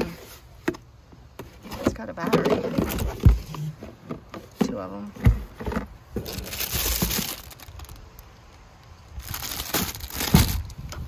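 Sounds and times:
items rustling in a box: 0:01.4 - 0:08.3, 0:09.2 - 0:11.0
plastic packaging crinkling: 0:06.2 - 0:08.3, 0:09.2 - 0:10.9.

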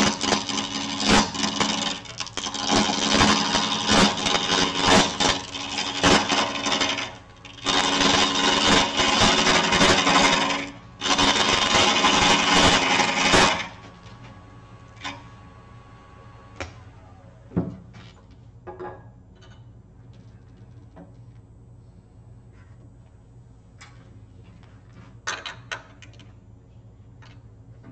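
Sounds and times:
gouge cutting wood on lathe: 0:00.0 - 0:13.8
lathe motor hum: 0:00.0 - 0:17.6.

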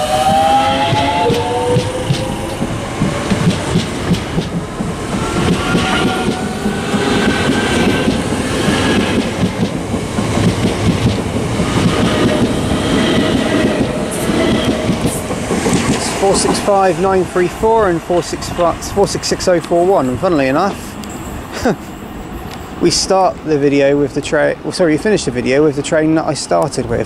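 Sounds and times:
electric train whine: 0:00.0 - 0:24.8
train wheels clattering over rail joints: 0:00.2 - 0:17.9.

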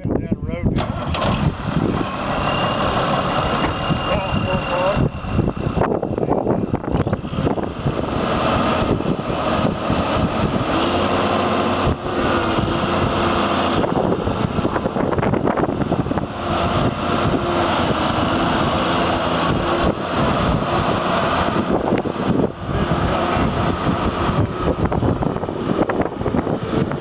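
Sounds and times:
tractor diesel engine running: 0:00.0 - 0:27.0
faint whine: 0:02.3 - 0:07.0.

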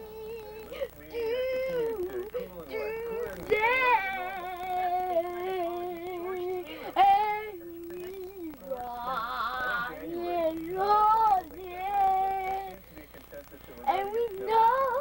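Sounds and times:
child singing wordless notes: 0:02.8 - 0:12.8, 0:13.9 - 0:15.0.

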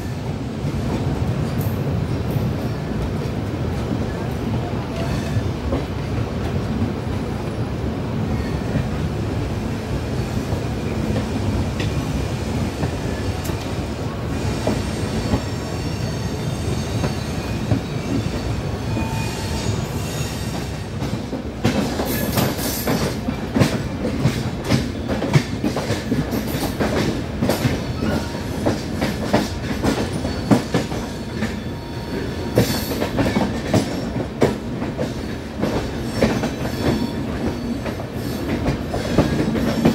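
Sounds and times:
train coaches rumbling on track: 0:00.0 - 0:39.9
high wheel squeal: 0:14.4 - 0:20.7.

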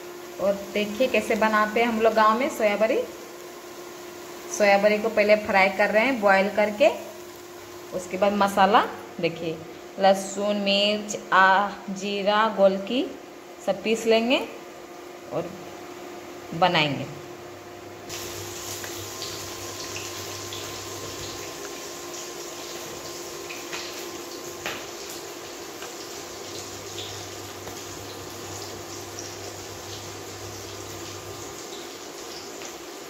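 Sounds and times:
oil sizzling and popping: 0:00.0 - 0:09.1, 0:18.1 - 0:33.0.

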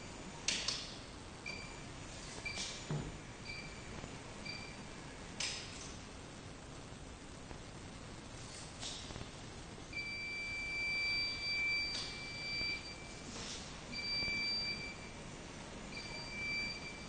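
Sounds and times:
high warning beep: 0:01.5 - 0:05.0, 0:09.9 - 0:13.3, 0:13.9 - 0:15.2, 0:15.9 - 0:17.0.

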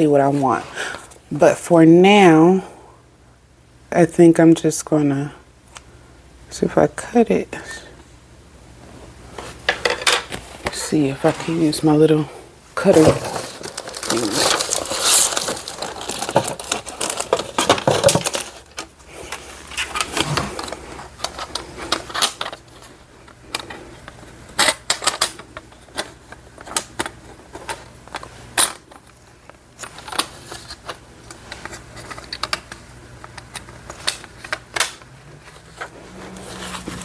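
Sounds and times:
objects being moved about: 0:09.3 - 0:11.8, 0:12.8 - 0:29.2, 0:29.8 - 0:37.0.

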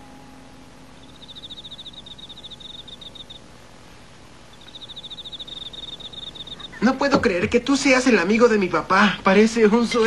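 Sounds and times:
cricket chirping: 0:00.8 - 0:03.7, 0:04.3 - 0:06.8.

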